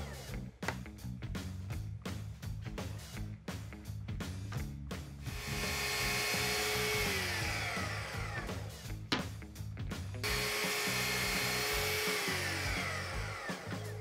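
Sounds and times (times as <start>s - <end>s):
background music: 0.0s - 14.0s
miter saw whining: 5.3s - 8.7s, 10.2s - 14.0s.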